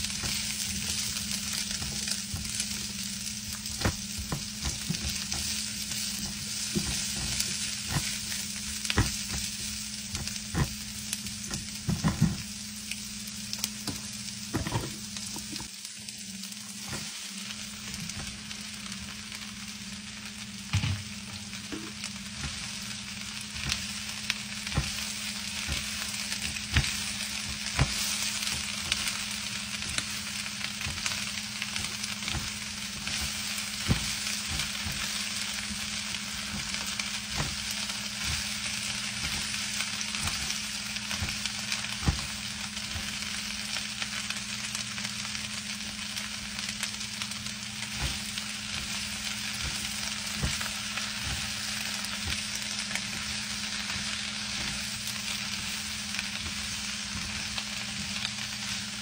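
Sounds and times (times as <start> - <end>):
vegetables sizzling in oil: 0.0 - 59.0.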